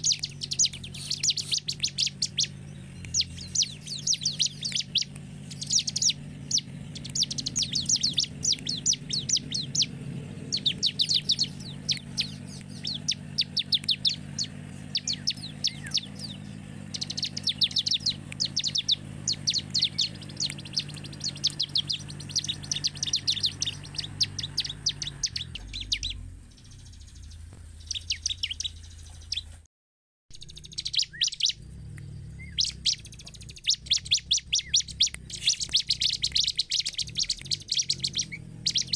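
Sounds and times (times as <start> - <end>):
bird singing high chirps: 0.0 - 29.6, 30.3 - 38.9
low steady hum: 0.0 - 29.6.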